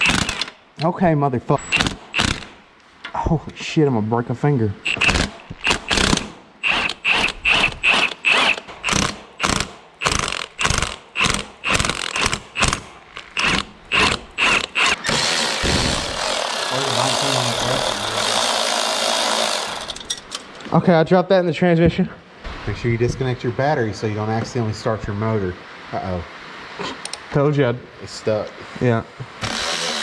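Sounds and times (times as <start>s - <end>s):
electric ratchet whirring: 0.0s - 0.6s, 1.7s - 2.5s, 4.8s - 20.2s, 29.4s - 30.0s
hand ratchet wrench clicking: 4.9s - 15.4s.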